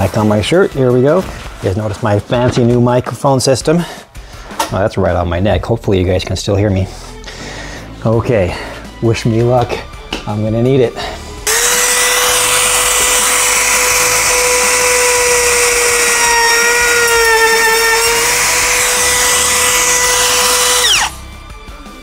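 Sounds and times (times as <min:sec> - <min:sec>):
router motor whine cutting wood: 0:11.5 - 0:21.2.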